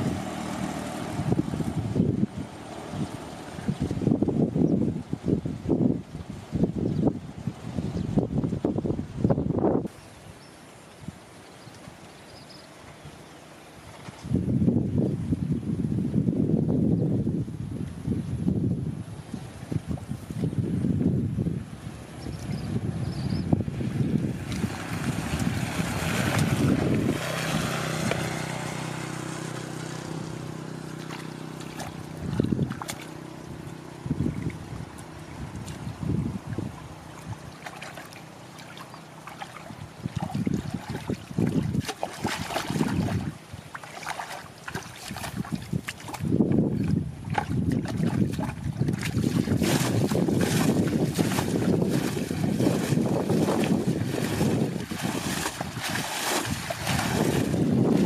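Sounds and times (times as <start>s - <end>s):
water splashing: 0.0s - 4.5s, 23.6s - 58.0s
wind buffeting microphone: 0.0s - 10.4s, 14.0s - 58.0s
steady low hum: 0.0s - 58.0s
water sloshing in bucket: 23.7s - 58.0s.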